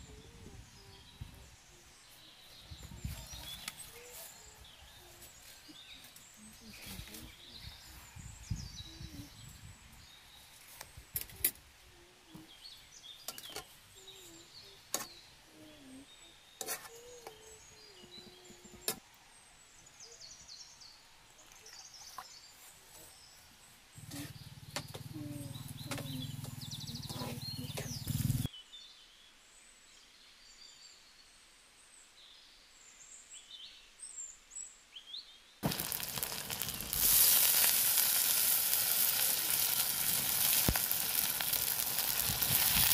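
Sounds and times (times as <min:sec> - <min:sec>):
birds chirping: 0:19.8 - 0:29.0, 0:35.6 - 0:42.9
chicken frying in hot oil: 0:35.6 - 0:42.9.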